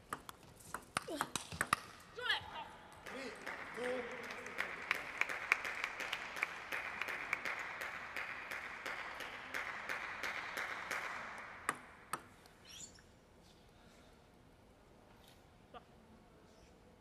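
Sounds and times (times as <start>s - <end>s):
spectators applauding: 3.0s - 11.6s.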